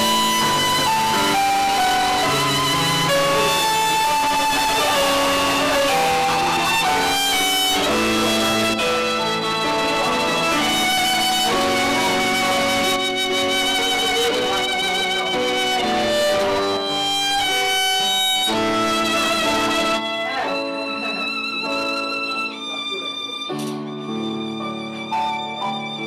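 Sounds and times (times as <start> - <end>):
instrumental background music: 0.0 - 26.0.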